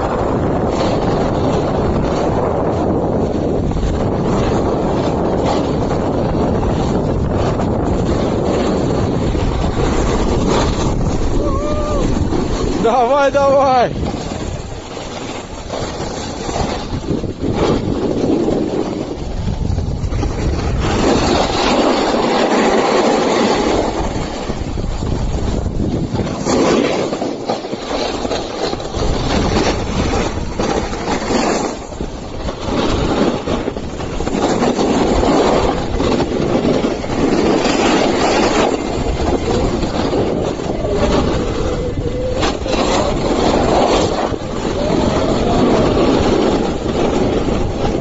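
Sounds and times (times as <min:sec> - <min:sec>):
shovel grinding down snow slope: 0:20.1 - 0:41.7, 0:42.4 - 0:48.0.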